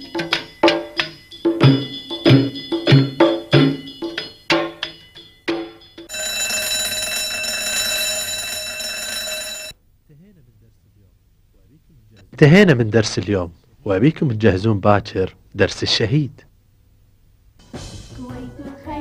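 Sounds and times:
ringing percussive theme music: 0:00.0 - 0:06.6
electric school bell ringing: 0:00.6 - 0:09.8.

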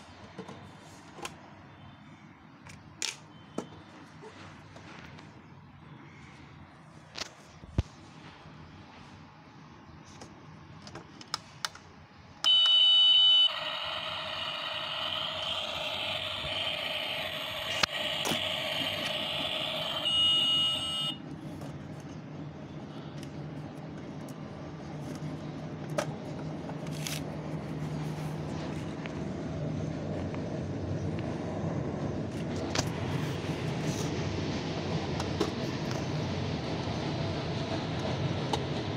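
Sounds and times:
toy stove beep: 0:12.4 - 0:21.2.

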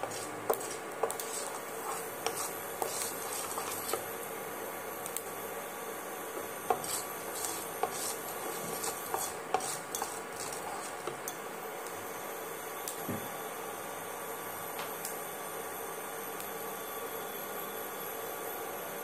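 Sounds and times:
spatula knocking and scraping pan: 0:00.0 - 0:04.0, 0:06.7 - 0:11.2.

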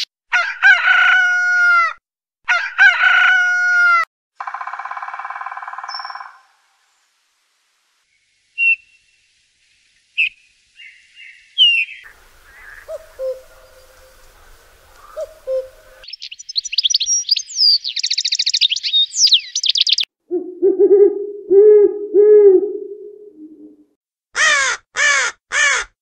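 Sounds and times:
woodpecker calls: 0:04.4 - 0:06.5, 0:10.2 - 0:20.1
cuckoo calling: 0:04.6 - 0:06.5, 0:08.6 - 0:09.0, 0:10.2 - 0:23.8
owl hoarse calls: 0:11.6 - 0:22.9.

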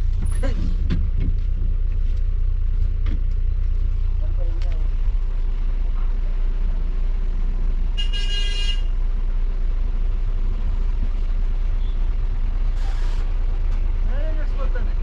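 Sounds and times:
diesel engine rumble: 0:00.0 - 0:15.0
short hiss: 0:12.7 - 0:13.4.

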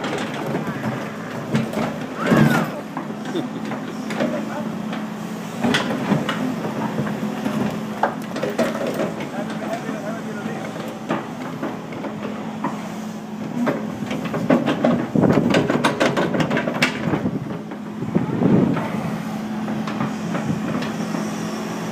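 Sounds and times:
diesel engine running: 0:00.0 - 0:21.9
metallic clanks and rattles: 0:13.5 - 0:17.8.

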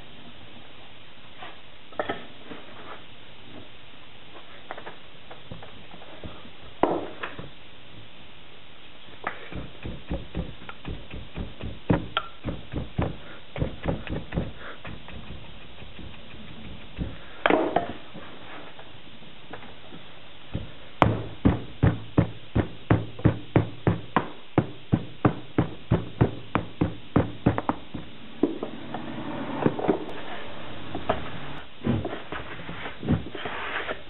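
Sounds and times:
hands patting sand: 0:09.3 - 0:17.4
sharp knocks on wood: 0:09.3 - 0:18.0.

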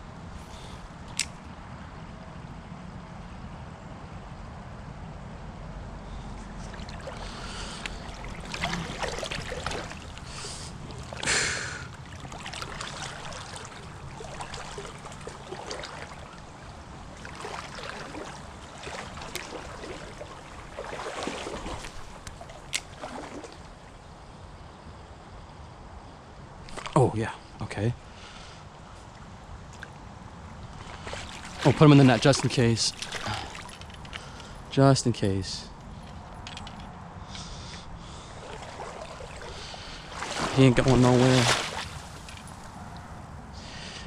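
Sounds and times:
brook flowing: 0:06.2 - 0:24.2, 0:27.9 - 0:44.0
water sloshing and splashing: 0:06.3 - 0:24.0, 0:26.6 - 0:27.1, 0:29.0 - 0:34.8, 0:35.8 - 0:43.3.

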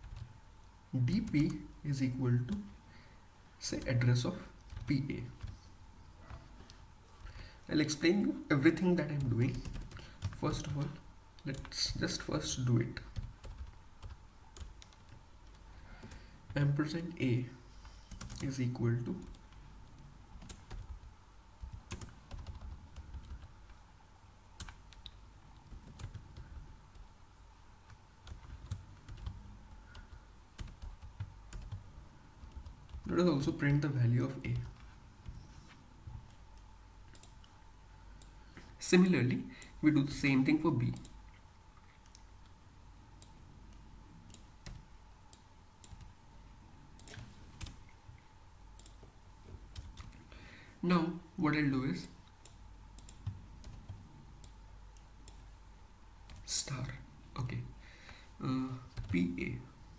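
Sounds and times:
computer keyboard typing: 0:00.0 - 0:00.3, 0:01.0 - 0:01.6, 0:04.6 - 0:05.6, 0:08.8 - 0:12.2, 0:13.0 - 0:16.7, 0:17.8 - 0:23.8, 0:24.6 - 0:27.1, 0:27.9 - 0:33.8, 0:37.1 - 0:37.5, 0:43.2 - 0:46.2, 0:47.0 - 0:47.8, 0:48.8 - 0:49.0, 0:49.7 - 0:50.2, 0:52.4 - 0:55.5, 0:56.2 - 0:56.5, 0:58.9 - 0:59.3
faint steady hum: 0:00.0 - 0:59.9.

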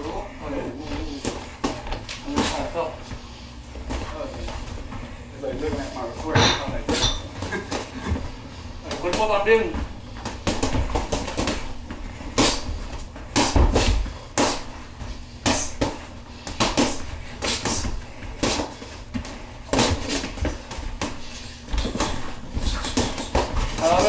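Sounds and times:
boxing gloves punching heavy bag: 0:15.4 - 0:24.0.

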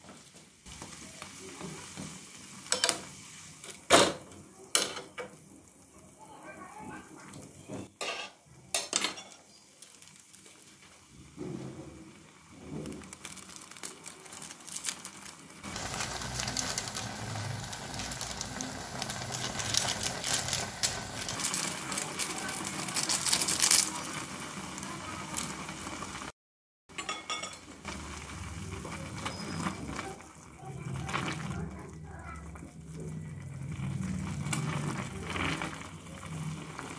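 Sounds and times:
water boiling and bubbling: 0:00.0 - 0:08.8, 0:09.4 - 0:36.9
crackling: 0:09.5 - 0:11.6, 0:12.2 - 0:26.3, 0:27.8 - 0:36.9.

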